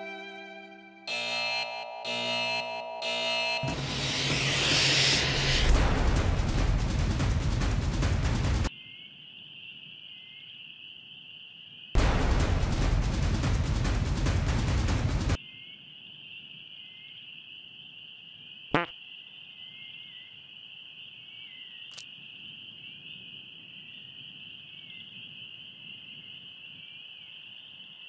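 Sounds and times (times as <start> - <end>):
music: 0.0 - 1.1, 3.6 - 8.7, 12.0 - 15.4
frog croak: 8.7 - 11.9, 15.4 - 28.0
insect chirring: 15.5 - 28.0.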